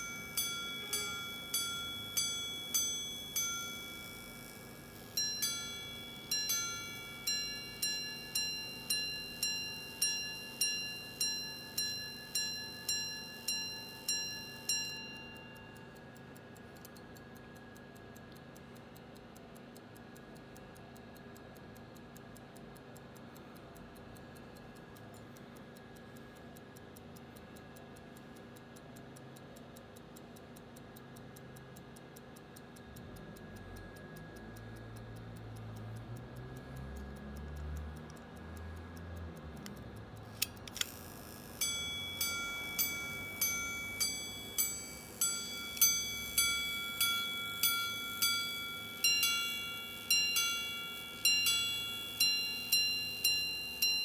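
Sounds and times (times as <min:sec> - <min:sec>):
watch chiming on a gong: 0:00.0 - 0:16.0, 0:41.5 - 0:54.0
watch ticking: 0:00.0 - 0:54.0
sharp click: 0:39.6 - 0:42.8.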